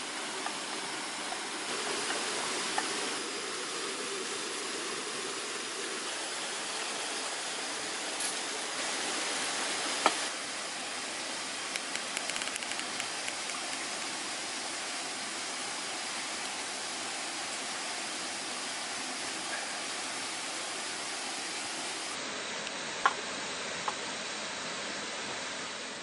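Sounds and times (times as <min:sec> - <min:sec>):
hot water pouring into cup: 0:00.0 - 0:20.0
steady rushing hiss: 0:00.0 - 0:26.0
faint ticks: 0:11.7 - 0:13.9.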